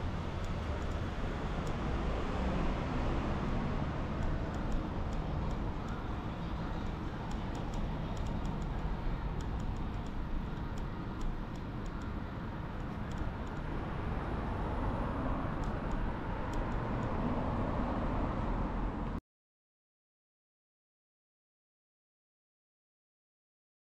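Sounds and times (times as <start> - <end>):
distant traffic rumble: 0.0 - 19.2
faint high-pitched ticks: 4.2 - 12.2.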